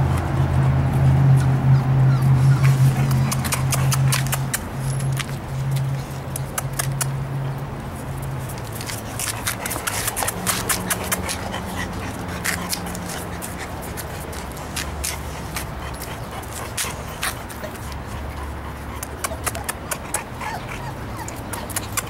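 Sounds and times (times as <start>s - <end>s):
puppies making small sounds: 1.8s - 5.1s, 8.7s - 22.0s.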